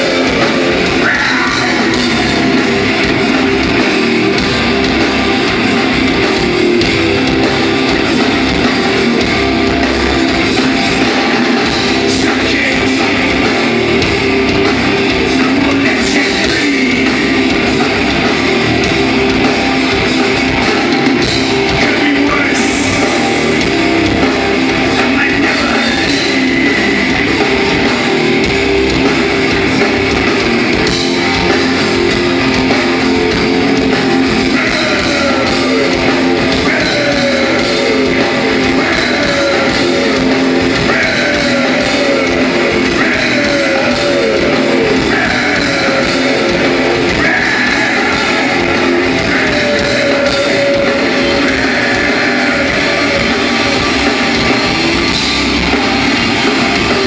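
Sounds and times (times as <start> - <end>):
live metal band playing: 0.0 - 57.0
guitar sliding down in pitch: 16.1 - 57.0.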